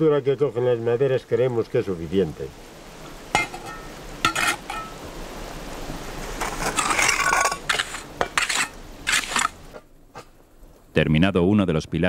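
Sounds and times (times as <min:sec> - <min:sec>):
trowel clinking: 0:03.4 - 0:05.0, 0:06.4 - 0:09.6
trowel scraping and stirring mortar: 0:06.3 - 0:10.3.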